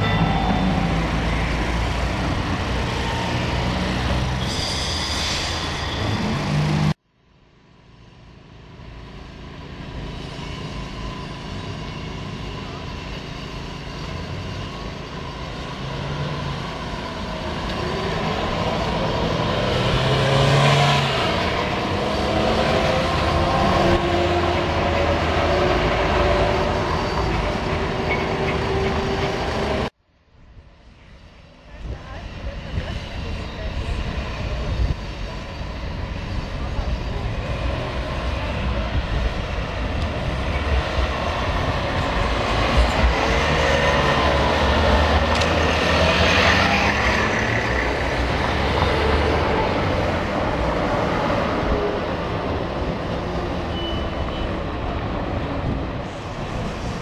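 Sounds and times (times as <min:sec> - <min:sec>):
tram wheel squeal: 0:00.0 - 0:07.0, 0:09.2 - 0:29.9, 0:31.0 - 0:57.0
tram wheels rumbling on rails: 0:00.0 - 0:07.0, 0:08.2 - 0:29.9, 0:30.8 - 0:57.0
cars driving by: 0:37.6 - 0:57.0.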